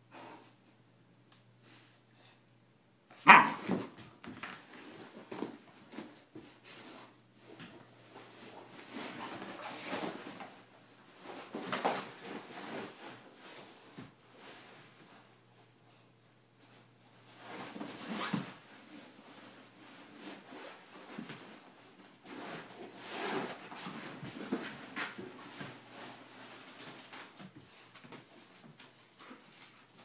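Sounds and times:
dog barking: 0:03.2 - 0:03.7.

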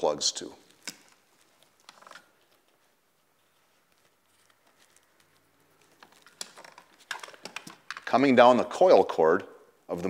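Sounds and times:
faint clicks and rustles of cables: 0:00.6 - 0:08.2.

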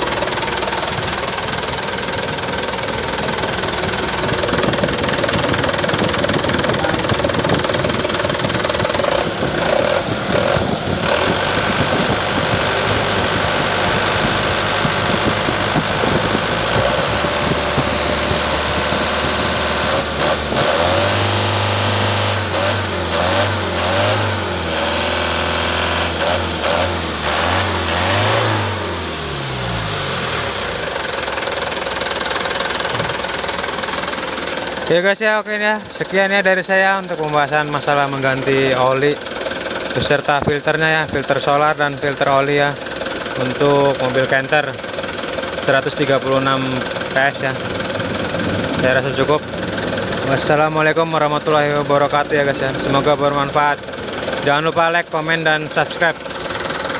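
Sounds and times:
diesel engine clattering: 0:00.0 - 0:56.9.

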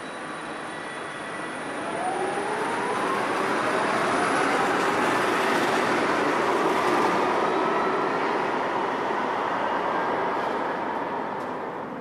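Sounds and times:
tram rolling noise: 0:00.0 - 0:12.0.

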